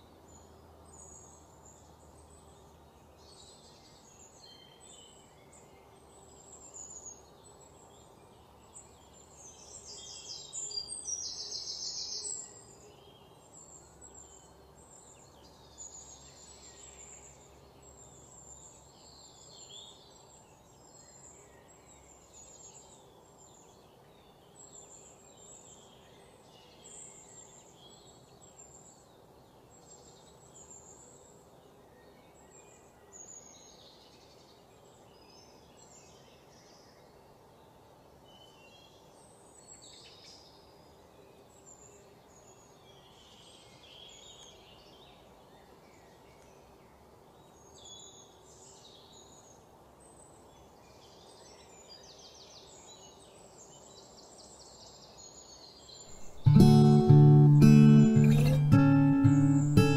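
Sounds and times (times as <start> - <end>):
faint background noise: 0.0 - 59.9
birds chirping: 56.1 - 59.9.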